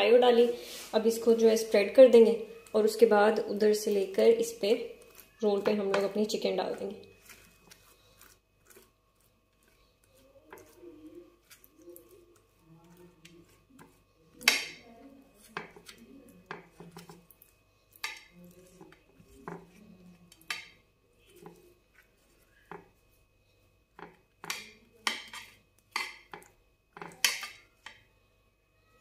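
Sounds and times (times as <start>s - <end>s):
metal spoon scraping ceramic plate: 24.0s - 26.4s.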